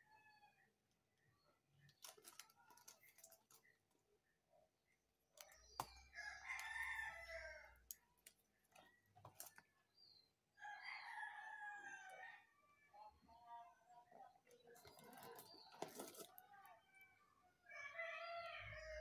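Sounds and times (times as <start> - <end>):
rooster crowing: 6.1 - 7.8, 10.6 - 12.6, 17.6 - 19.0.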